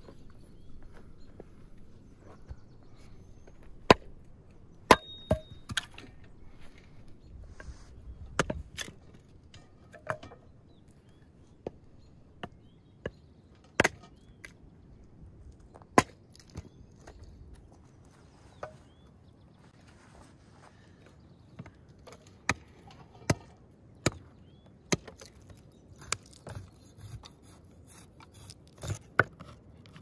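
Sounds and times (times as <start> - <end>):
hatchet chopping firewood: 3.4 - 6.8, 8.3 - 14.7, 15.6 - 17.3, 21.5 - 30.0.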